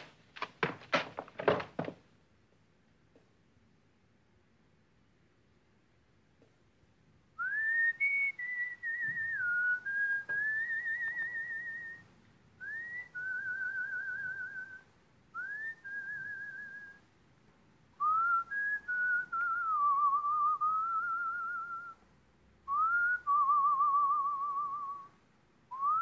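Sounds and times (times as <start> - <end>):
person whistling a slow melody: 7.4 - 12.0, 12.6 - 14.8, 15.4 - 17.0, 18.0 - 22.0, 22.7 - 25.1, 25.7 - 26.0.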